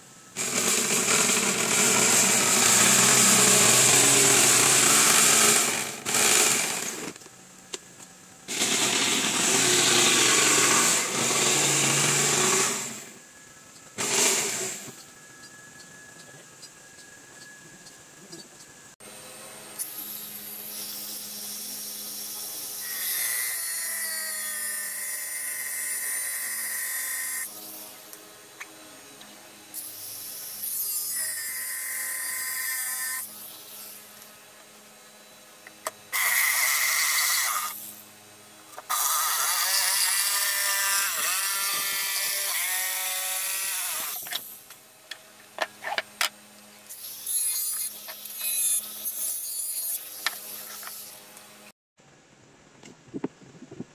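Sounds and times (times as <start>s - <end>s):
angle grinder grinding plywood: 8.5s - 13.2s, 14.0s - 15.0s, 38.7s - 51.7s.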